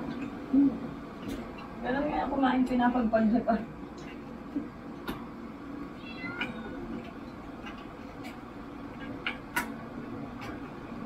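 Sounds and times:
low room hum: 0.0s - 11.0s
cat meowing: 6.0s - 7.0s.

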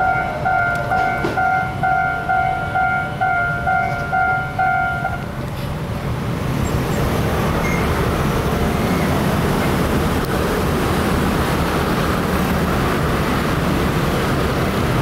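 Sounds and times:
level crossing bell ringing: 0.0s - 5.2s.

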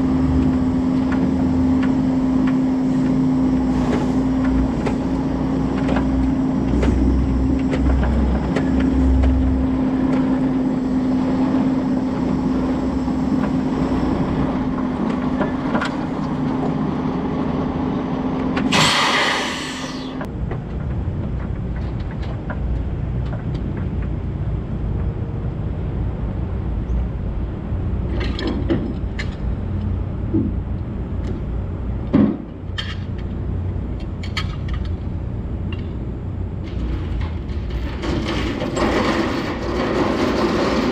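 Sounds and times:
truck engine running: 0.0s - 40.9s
air hiss: 18.7s - 20.2s.

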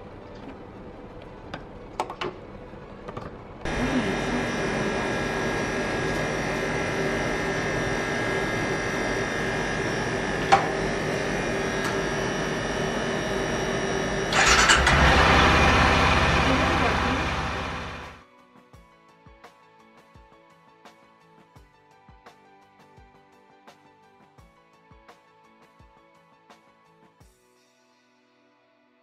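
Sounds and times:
louder sound: 3.7s - 18.2s
motorcycle engine idling: 3.7s - 18.2s.

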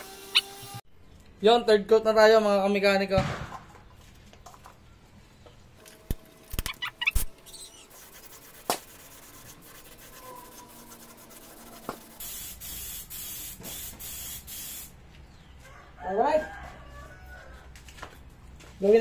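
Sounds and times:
spray gun hissing: 12.2s - 14.9s.

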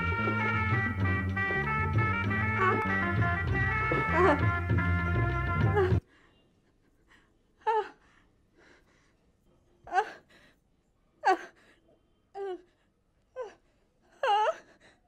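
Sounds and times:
woman sobbing: 3.9s - 4.6s, 5.6s - 6.1s, 13.4s - 14.8s.

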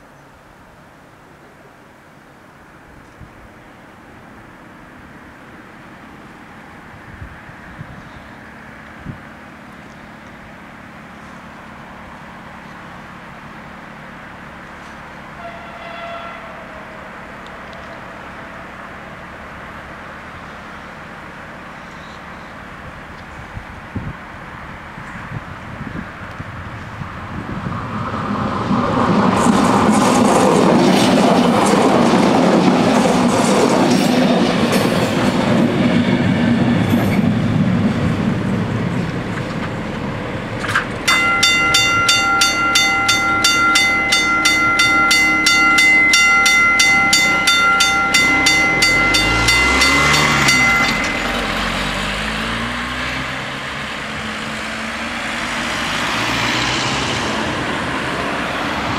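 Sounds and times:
train rumbling past: 2.2s - 58.9s
car passing: 24.3s - 58.9s
level crossing bells ringing: 41.1s - 52.8s.

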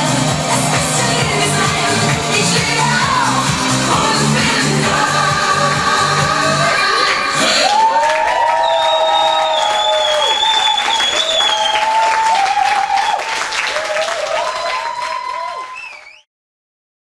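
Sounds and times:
audience applauding and cheering: 6.1s - 16.3s.

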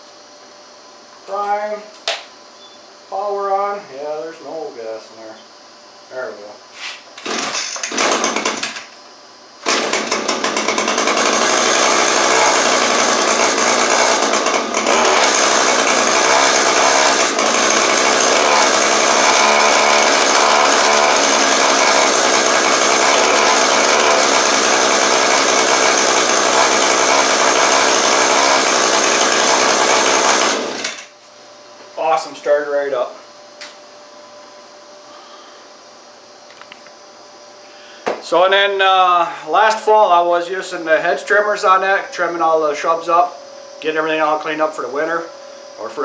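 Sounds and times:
two-stroke engine running: 7.2s - 8.8s, 9.6s - 31.1s.

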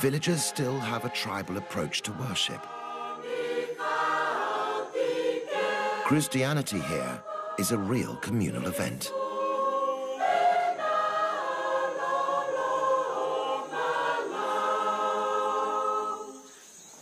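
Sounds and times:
congregation singing a hymn: 0.0s - 16.5s.

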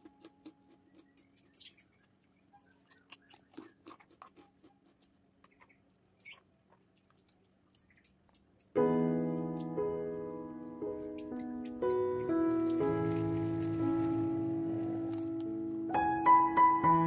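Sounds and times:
chewing crunchy cracker: 0.0s - 0.9s, 2.7s - 5.5s.

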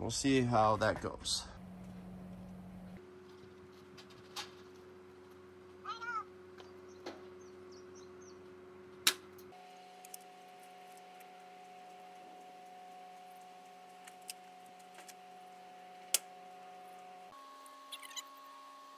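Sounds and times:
short wavering animal call: 17.8s - 18.4s.

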